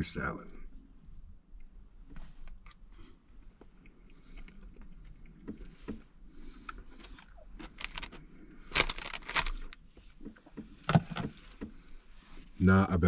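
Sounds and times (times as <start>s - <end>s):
chewing: 2.5s - 10.8s
snack bag crackling: 6.7s - 9.8s.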